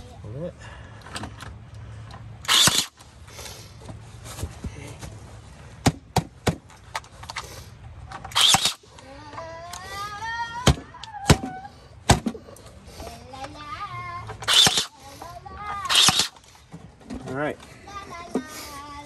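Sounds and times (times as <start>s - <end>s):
nailer firing nails: 2.5s - 2.9s, 8.3s - 8.8s, 14.4s - 14.9s, 15.9s - 16.4s.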